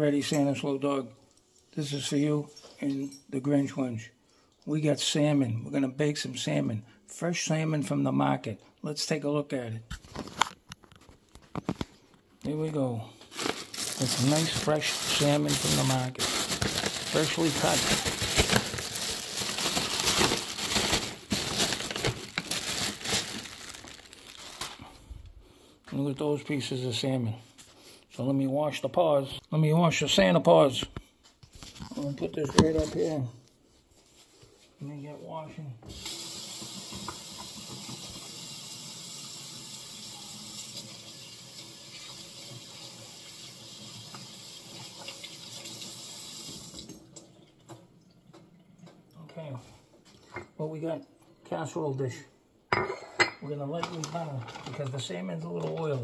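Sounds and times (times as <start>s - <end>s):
wrapping crinkling: 10.0s - 25.2s, 53.9s - 56.0s
tap water running into sink: 35.9s - 49.0s.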